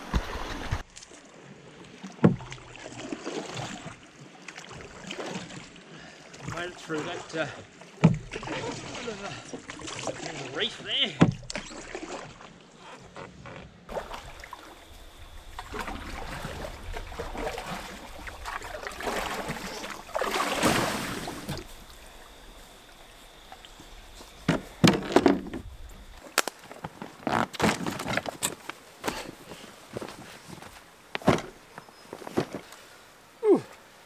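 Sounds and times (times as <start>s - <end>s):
paddle strokes splashing in water: 0.0s - 30.7s.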